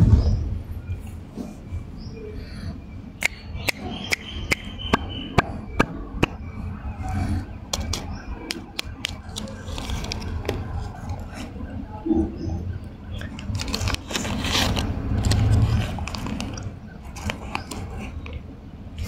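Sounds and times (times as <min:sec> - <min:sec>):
sharp evenly spaced clicks: 0:03.2 - 0:06.5
paper wrapper rustling: 0:08.6 - 0:11.4, 0:13.2 - 0:18.2.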